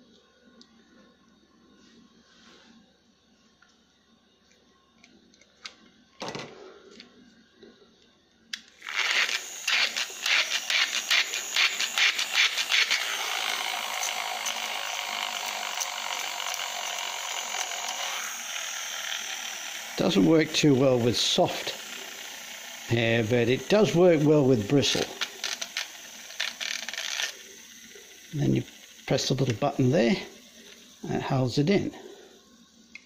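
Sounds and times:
rotary shaver whirring buzz: 8.6s - 33.0s.

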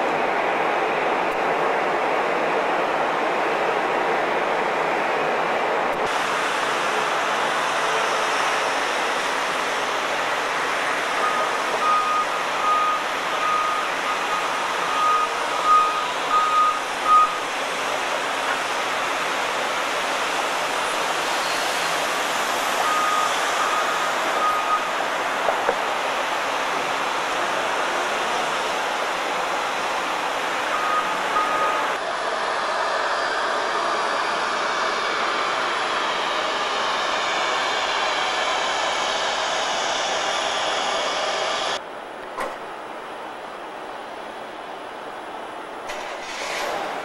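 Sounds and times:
reversing beeper: 11.2s - 17.4s, 22.8s - 25.0s, 30.7s - 32.0s
jet engine rush: 32.2s - 41.8s.

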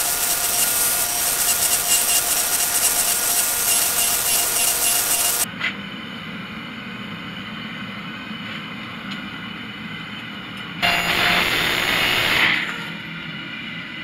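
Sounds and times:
hydraulic pump motor whining: 0.0s - 5.5s, 10.8s - 12.8s
forge burner humming: 0.0s - 14.0s.

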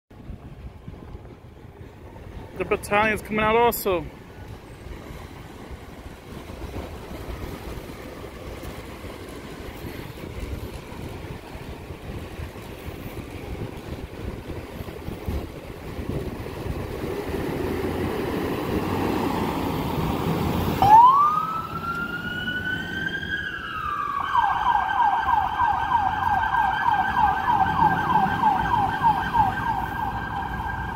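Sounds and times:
street and engine noise: 0.1s - 30.9s
siren wailing and yelping: 20.8s - 30.9s.

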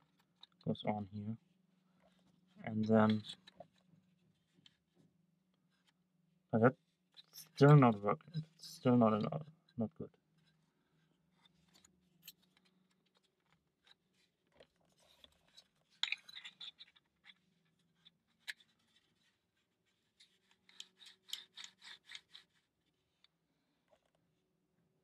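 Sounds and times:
wooden parts clicking: 20.2s - 22.6s.

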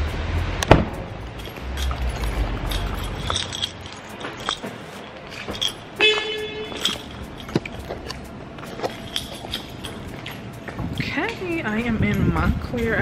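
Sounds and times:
car horn beep: 6.0s - 6.9s.

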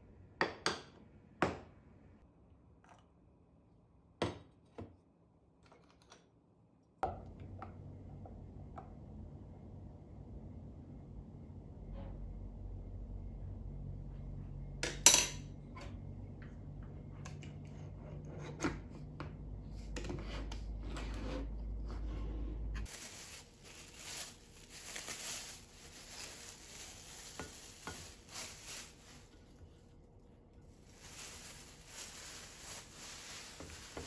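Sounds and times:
low steady hum: 7.1s - 34.0s
plastic wrapping crinkling: 22.8s - 29.9s, 30.6s - 34.0s.

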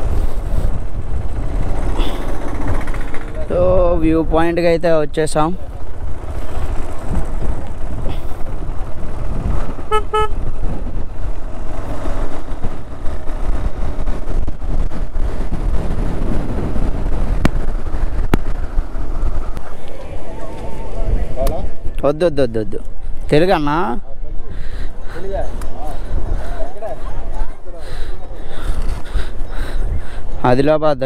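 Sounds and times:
motorcycle running at low speed: 0.0s - 21.9s
wind rumble on microphone: 0.0s - 31.0s
horn beeps: 9.9s - 10.4s.

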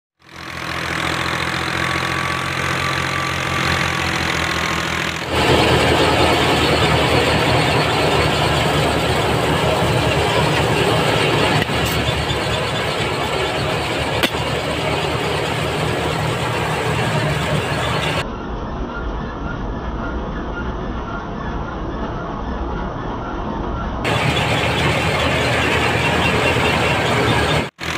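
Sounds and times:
tractor engine drone: 0.2s - 27.9s
thresher rattling: 0.7s - 18.2s, 24.1s - 27.9s.

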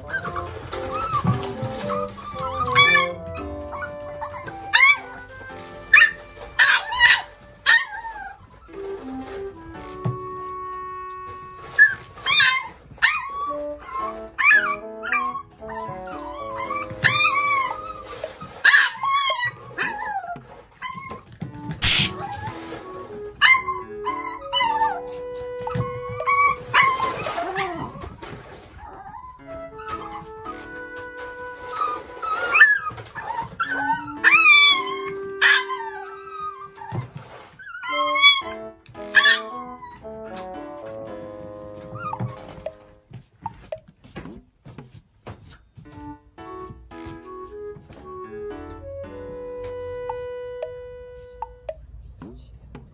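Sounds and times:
puppy yelping and whining: 0.0s - 8.8s, 11.3s - 40.4s, 41.8s - 43.8s
background music held notes: 0.0s - 44.2s, 45.2s - 52.1s.

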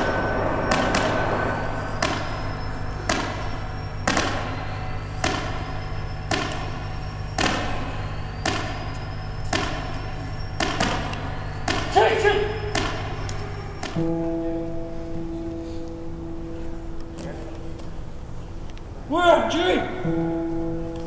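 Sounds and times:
heavy ringing thuds: 0.0s - 15.4s
low steady hum: 0.0s - 19.1s.

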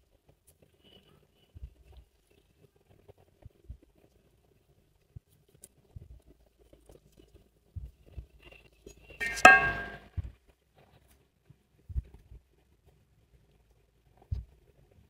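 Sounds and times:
hand tools clinking: 9.2s - 10.0s.

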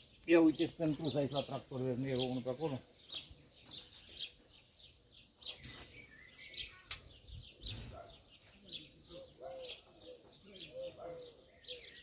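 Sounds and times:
small birds chirping: 0.0s - 12.0s
sharp click: 6.8s - 7.1s.

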